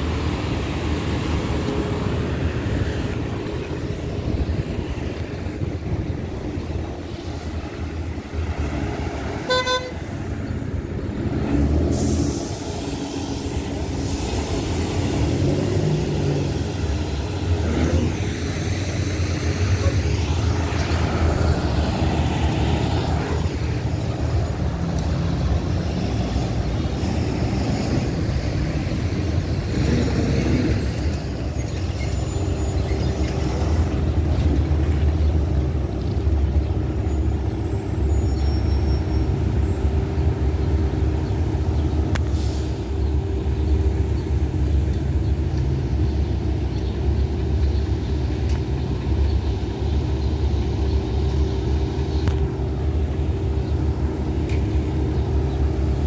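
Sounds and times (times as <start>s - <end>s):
traffic engine rumble: 0.0s - 56.0s
air brakes hissing: 11.9s - 17.2s, 42.3s - 43.0s.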